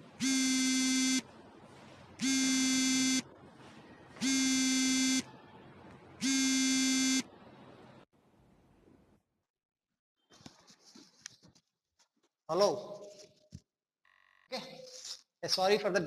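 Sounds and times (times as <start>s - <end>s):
phone buzzing ringtone: 0.2s - 1.3s, 2.2s - 3.3s, 4.2s - 5.3s, 6.2s - 7.3s.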